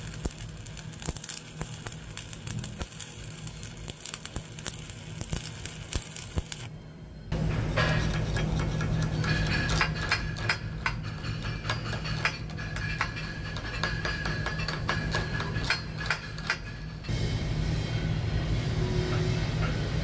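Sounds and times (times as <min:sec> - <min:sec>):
welding arc crackling: 0:00.0 - 0:06.8.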